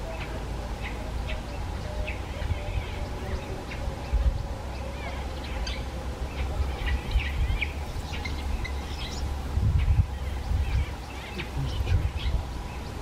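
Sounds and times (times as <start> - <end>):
birds chirping and whistling: 0.0 - 13.0
steady low rumble: 0.0 - 13.0.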